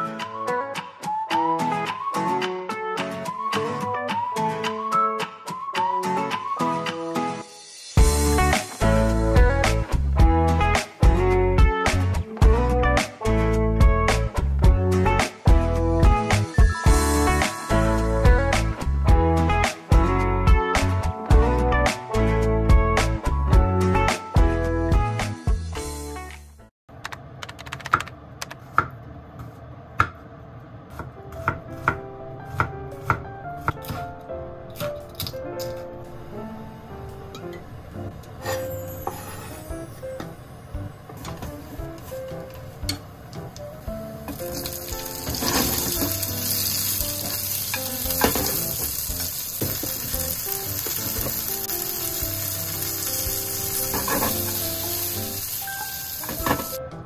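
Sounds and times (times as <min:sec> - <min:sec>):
faint background music: 0:30.9 - 0:57.0
food sizzling in hot oil: 0:44.3 - 0:56.8.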